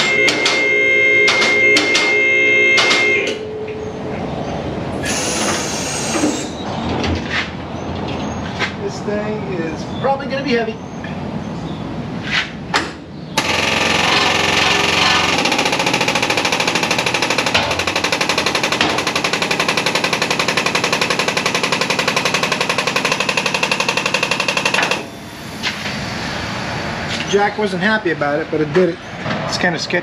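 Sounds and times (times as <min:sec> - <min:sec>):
air jack rapid chatter: 0:05.0 - 0:06.6, 0:13.4 - 0:25.2.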